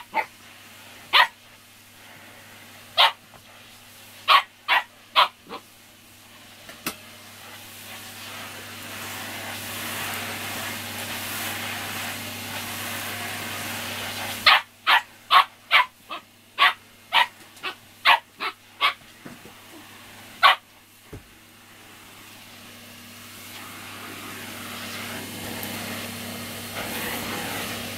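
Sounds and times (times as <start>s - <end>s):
puppy barking: 0.0s - 0.3s, 1.1s - 1.4s, 3.0s - 3.2s, 4.2s - 5.6s, 14.4s - 19.0s, 20.4s - 20.7s
vacuum cleaner humming: 0.0s - 27.9s.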